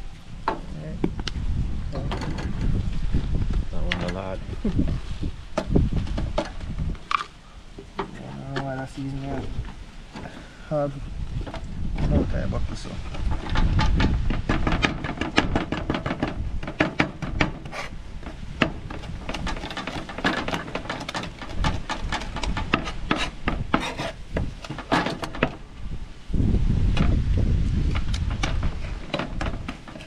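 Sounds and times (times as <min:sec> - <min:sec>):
steady low rumble: 0:00.0 - 0:19.7.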